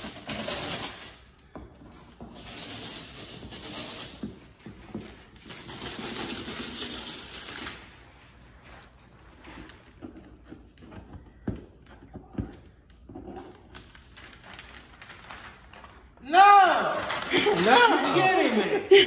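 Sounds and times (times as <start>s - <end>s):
wrapping paper tearing and rustling: 0.0s - 1.3s, 5.2s - 8.1s, 13.2s - 18.6s.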